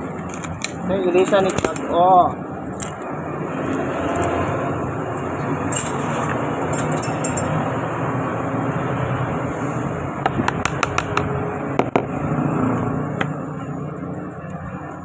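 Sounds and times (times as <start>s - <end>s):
road traffic noise: 0.0s - 15.0s
glass clinking: 5.1s - 7.6s.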